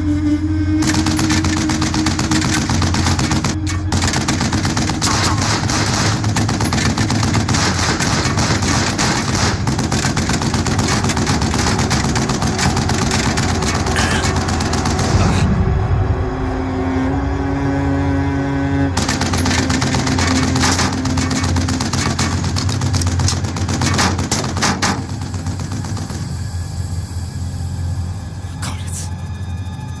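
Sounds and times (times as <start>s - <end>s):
vehicle engine running: 0.0s - 28.0s
automatic gunfire: 0.8s - 15.3s, 19.0s - 26.3s
bullets striking vehicle: 19.0s - 26.2s.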